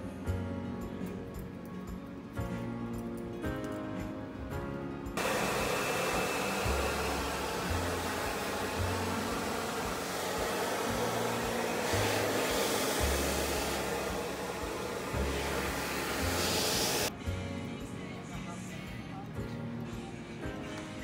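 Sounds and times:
hair dryer blowing: 0:05.2 - 0:17.1.

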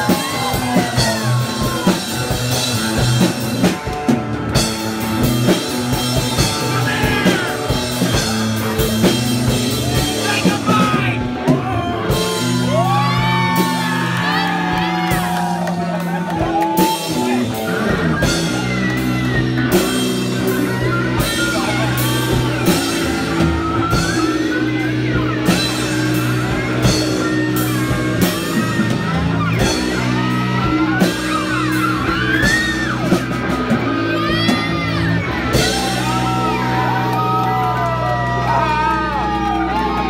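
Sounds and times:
punk rock band playing: 0:00.0 - 0:40.0.

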